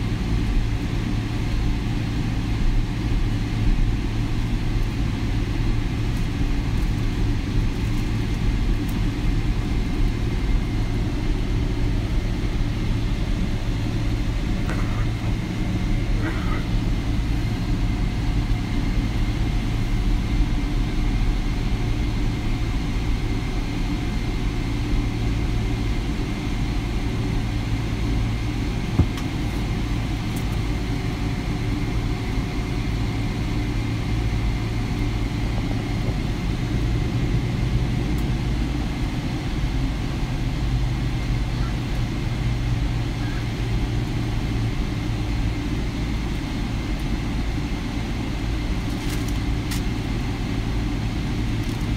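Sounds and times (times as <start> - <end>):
airplane cabin rumble and hum: 0.0 - 51.9.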